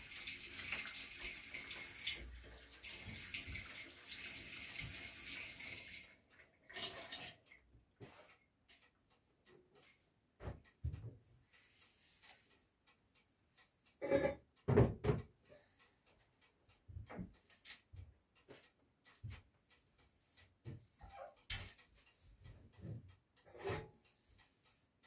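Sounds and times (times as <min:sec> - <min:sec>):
knocks and clatters at steel sink: 0:14.0 - 0:15.4.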